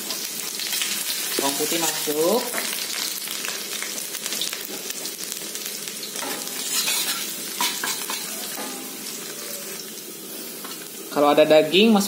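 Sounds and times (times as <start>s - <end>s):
garlic sizzling in oil: 0.0s - 12.0s
metal spatula scraping a wok: 6.2s - 9.8s.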